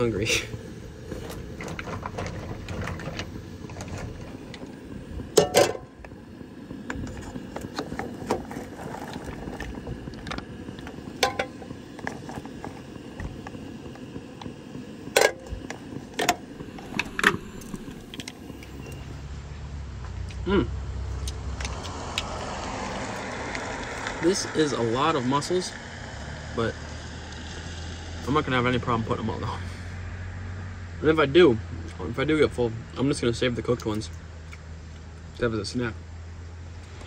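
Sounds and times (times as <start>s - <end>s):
pot steaming: 0.0s - 19.4s, 20.4s - 30.1s
steady low rumble: 0.0s - 26.1s.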